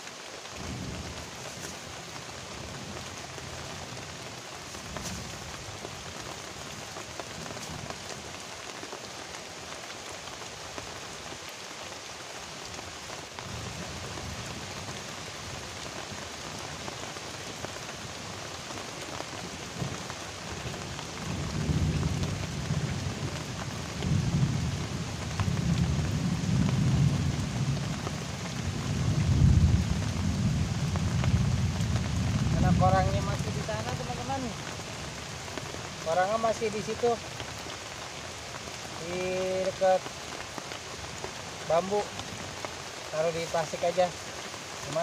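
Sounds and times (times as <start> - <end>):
heavy rain on river: 0.0 - 45.0
thunder rumbling: 19.4 - 37.0.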